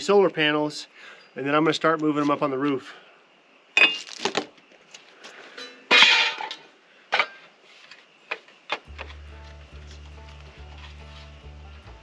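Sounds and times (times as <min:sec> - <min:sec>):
metal parts clanking on workbench: 0:05.6 - 0:07.4.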